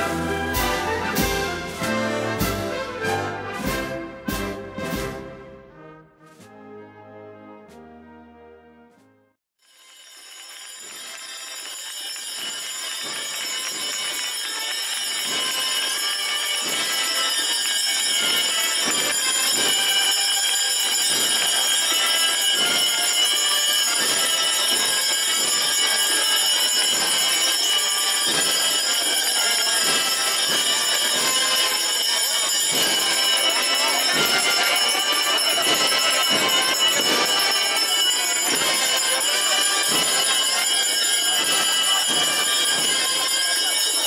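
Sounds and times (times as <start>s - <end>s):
crowd noise: 11.0s - 44.0s.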